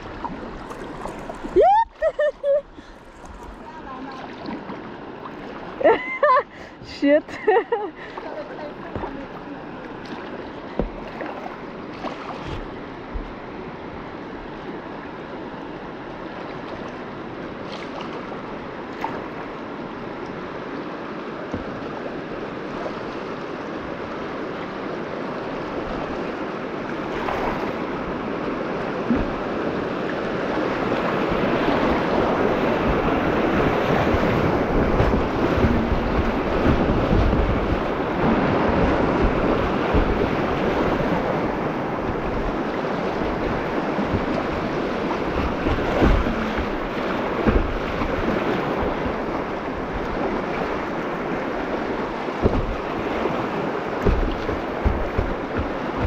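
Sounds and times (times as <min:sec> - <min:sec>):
rushing whitewater: 0:08.0 - 0:56.0
wind buffeting microphone: 0:27.3 - 0:56.0
short knocks: 0:52.4 - 0:52.9, 0:54.0 - 0:56.0.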